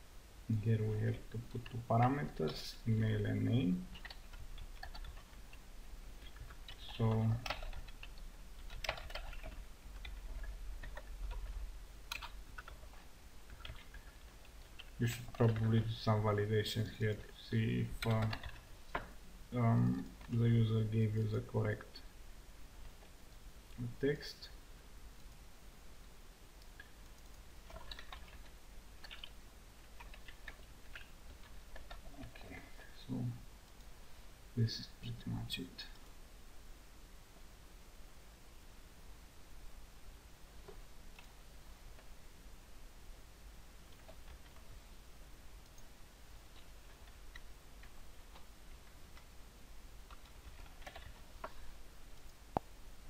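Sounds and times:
low steady hum: 0.0 - 53.0
computer keyboard typing: 1.5 - 16.0, 17.8 - 19.1, 26.6 - 32.8, 43.9 - 44.8, 46.5 - 49.3, 50.0 - 51.6.

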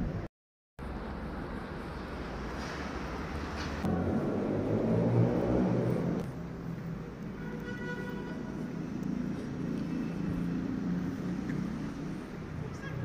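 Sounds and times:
distant road traffic rumble: 0.0 - 13.0.

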